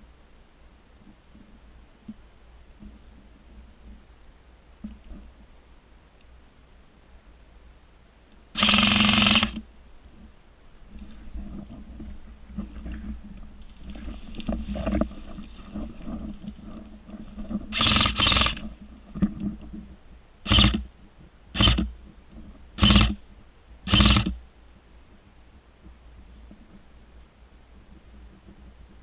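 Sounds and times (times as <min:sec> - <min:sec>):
airsoft gun full-auto bursts: 0:08.6 - 0:09.6, 0:17.7 - 0:18.6, 0:20.4 - 0:20.9, 0:21.6 - 0:21.9, 0:22.8 - 0:23.2, 0:23.9 - 0:24.4.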